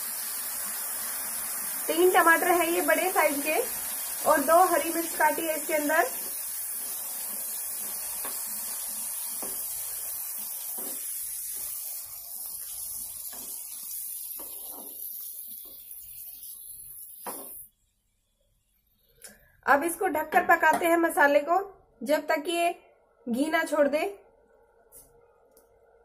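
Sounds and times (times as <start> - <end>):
vegetables sizzling in a pan: 0.0 - 17.7.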